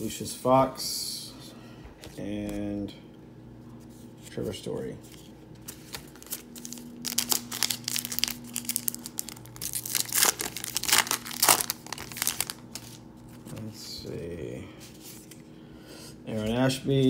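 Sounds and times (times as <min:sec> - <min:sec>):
card pack wrapper crinkling and tearing: 0:05.6 - 0:13.8.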